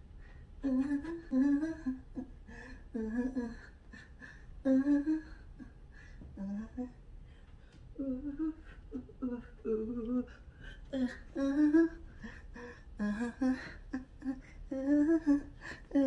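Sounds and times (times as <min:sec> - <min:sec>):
woman humming a tune: 0:00.6 - 0:05.7, 0:08.0 - 0:16.0.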